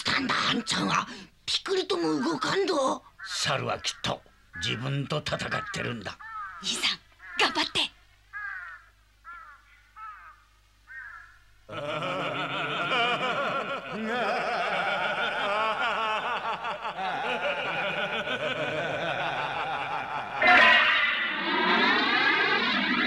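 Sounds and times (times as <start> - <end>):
cartoon chorus laughing: 11.7 - 23.0.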